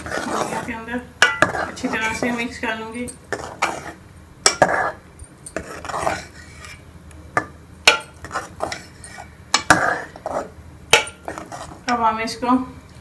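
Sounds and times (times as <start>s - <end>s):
spoon stirring custard: 0.0s - 12.0s
spoon clinking against steel pot: 1.2s - 1.7s.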